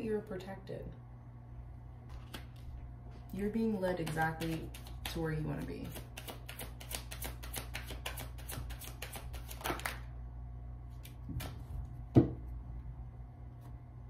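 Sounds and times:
steady low hum: 0.0s - 14.0s
cards being shuffled: 2.1s - 2.7s, 5.8s - 10.0s.

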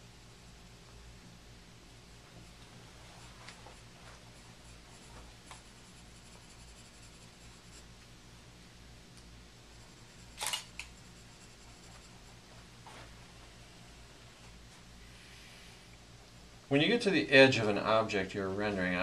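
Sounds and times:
faint low hum: 0.0s - 19.0s
pencil scratching on paper: 2.4s - 7.9s, 9.7s - 12.4s.

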